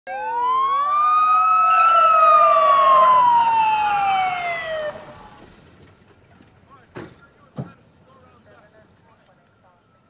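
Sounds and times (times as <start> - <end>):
police siren wailing: 0.1 - 5.5
second siren: 0.1 - 5.5.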